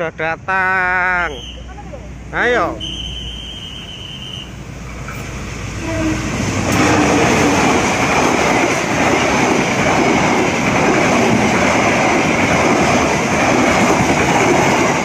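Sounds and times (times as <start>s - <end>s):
train wheels rumbling on rails: 0.3s - 15.0s.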